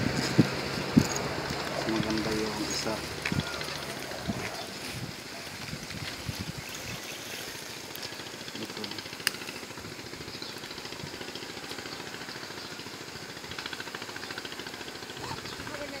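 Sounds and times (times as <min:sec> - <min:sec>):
fluttering low rumble: 0:00.0 - 0:08.4.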